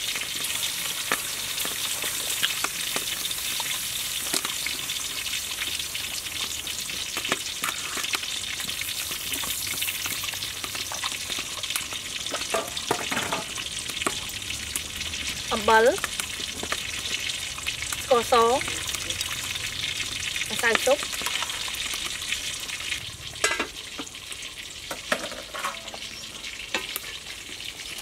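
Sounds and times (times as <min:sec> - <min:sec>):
water boiling in a pot: 0:00.0 - 0:28.0
metal ladle stirring in pot: 0:25.2 - 0:27.2.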